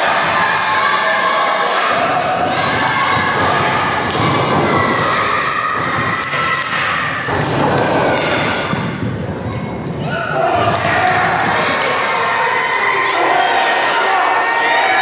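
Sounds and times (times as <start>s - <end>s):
crowd voices in a gymnasium: 0.0s - 15.0s
wrestlers thumping and slapping: 2.2s - 12.4s.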